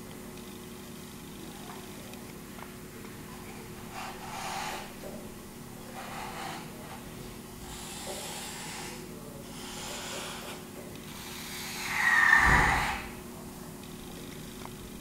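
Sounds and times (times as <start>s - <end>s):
whistling breath out through nose: 11.6s - 13.1s.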